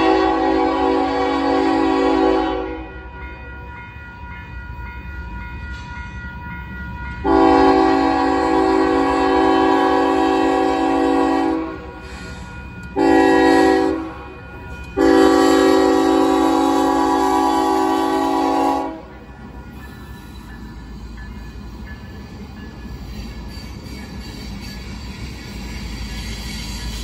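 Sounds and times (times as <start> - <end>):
locomotive air horn blasts: 0.0 - 3.0, 7.2 - 11.9, 12.9 - 14.4, 15.0 - 19.2
low rumble of train: 0.0 - 27.0.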